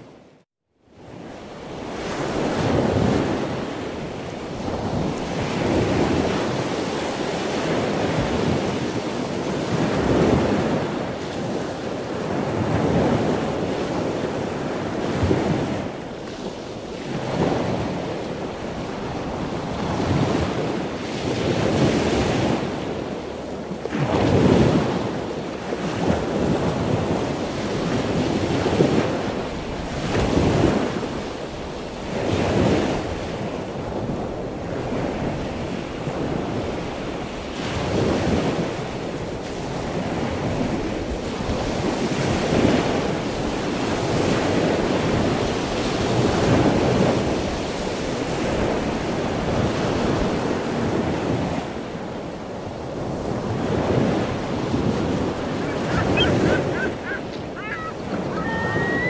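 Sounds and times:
wind buffeting microphone: 32.2s - 59.0s
waves breaking on rocks: 52.7s - 59.0s.

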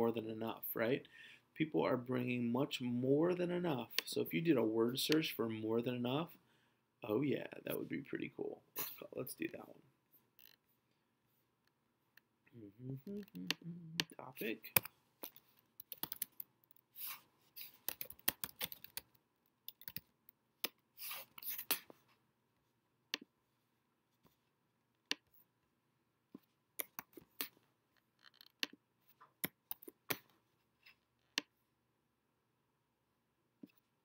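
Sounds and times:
keyboard and mouse clicks: 13.0s - 16.5s, 17.7s - 19.1s, 19.7s - 20.8s, 26.8s - 27.6s, 28.3s - 30.3s
scratchy rubbing sounds: 16.9s - 18.0s, 21.0s - 22.0s.

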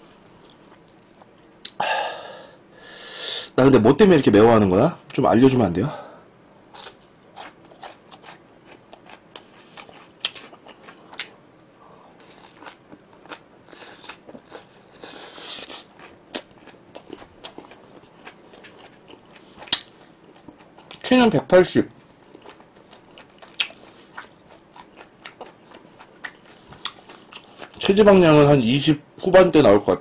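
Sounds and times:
wet chewing: 6.8s - 21.0s, 22.3s - 27.9s.

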